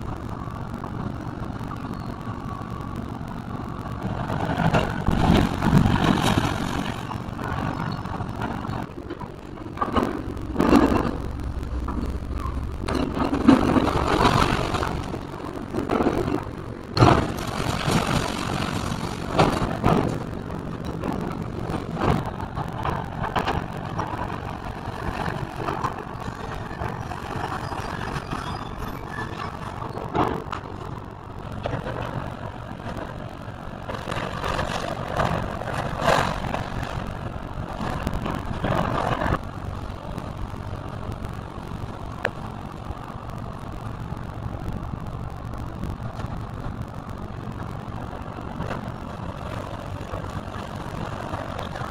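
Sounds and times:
excavator engine under load: 0.0 - 51.9
falling debris: 4.1 - 30.6.

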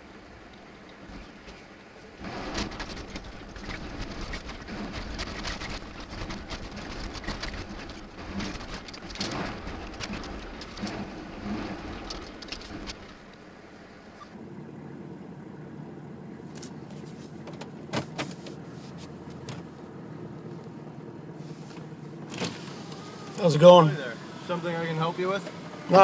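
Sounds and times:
truck rumbling on wet road: 0.0 - 26.0
raindrops tapping on windshield: 0.4 - 14.4.

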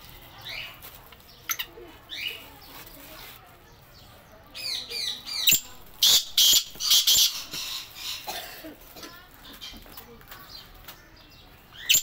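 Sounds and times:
faint bird chirps: 9.6 - 12.0.

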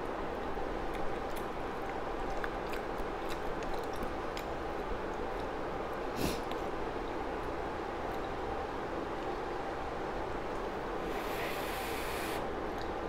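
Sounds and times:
faint chewing: 0.4 - 6.7, 12.7 - 13.0
background hiss: 11.0 - 12.4.

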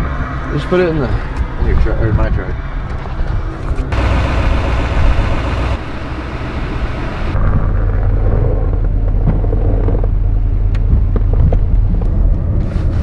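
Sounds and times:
truck engine idling: 3.9 - 7.4.

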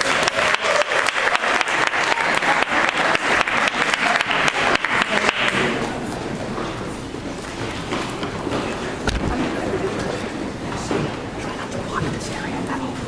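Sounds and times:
audience applauding: 0.0 - 6.2.

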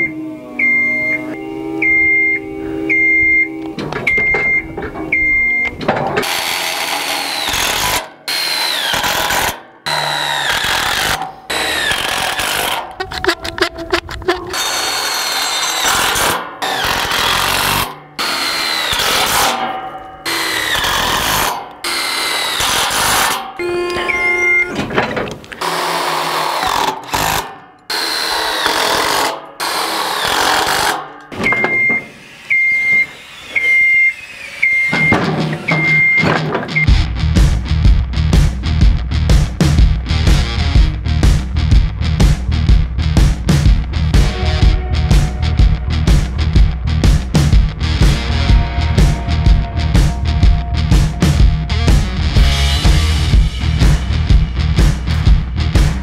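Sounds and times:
steady high beep: 0.0 - 5.8, 23.6 - 24.8, 31.5 - 36.9
cordless driver whining: 0.0 - 36.8
screws driven through steel: 6.2 - 24.8, 25.5 - 36.2.

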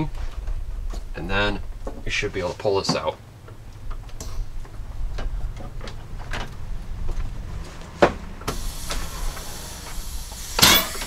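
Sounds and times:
faint gas hiss: 8.5 - 11.0.

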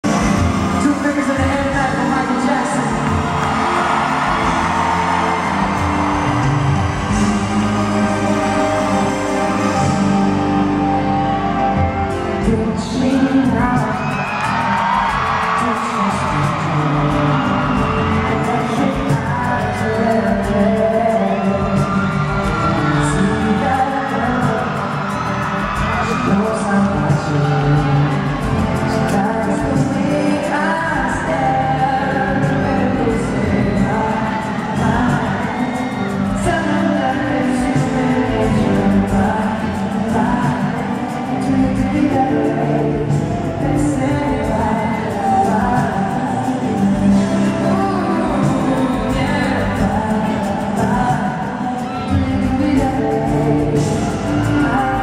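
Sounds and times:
crowd whooping: 0.0 - 55.0
live pop band and singer: 0.0 - 55.0.

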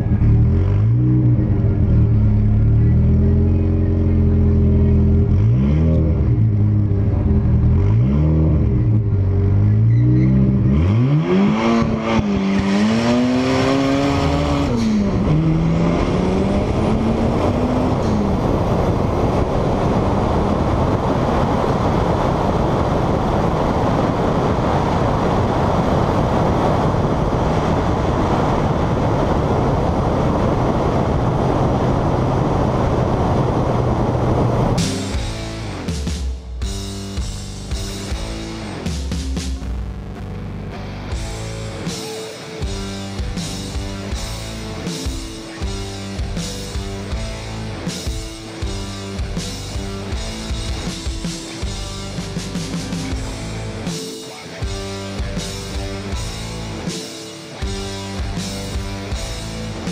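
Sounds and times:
car engine revving and accelerating: 0.0 - 36.5
wind rushing: 11.8 - 36.5.

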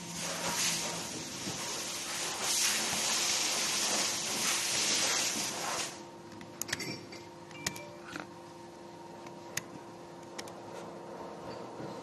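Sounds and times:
steady hiss: 0.0 - 6.0.

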